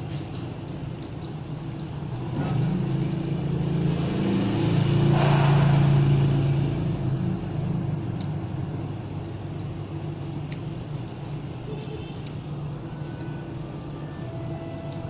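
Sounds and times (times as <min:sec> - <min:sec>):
vehicle engine passing by: 0:02.1 - 0:08.7.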